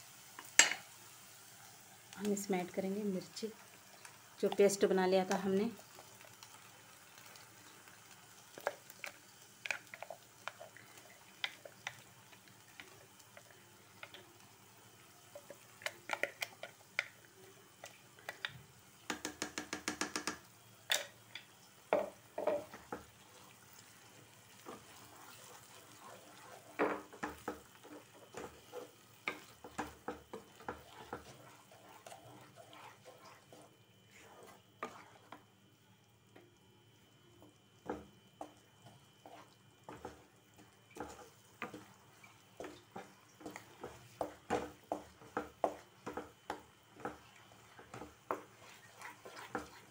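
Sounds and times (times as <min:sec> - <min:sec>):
faint oil sizzle: 0:00.0 - 0:49.9
clicks and taps: 0:18.3 - 0:20.4
spatula scraping frying pan: 0:24.6 - 0:35.4, 0:38.4 - 0:49.9.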